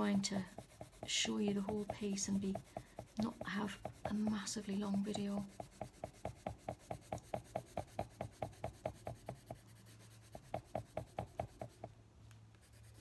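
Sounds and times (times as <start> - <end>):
coloured pencil scratching paper: 0.0 - 11.9, 12.6 - 13.0.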